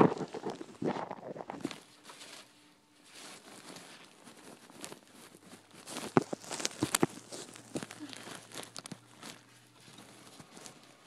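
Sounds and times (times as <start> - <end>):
phone microphone handling noise: 0.0 - 1.8.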